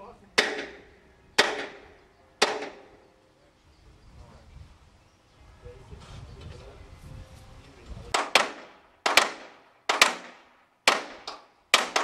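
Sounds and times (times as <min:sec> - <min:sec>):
hammer striking steel: 0:00.4 - 0:03.1.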